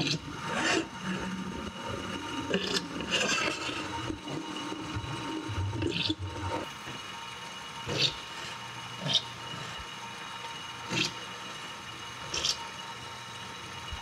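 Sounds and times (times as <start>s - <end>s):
drill press running: 0.0s - 14.0s.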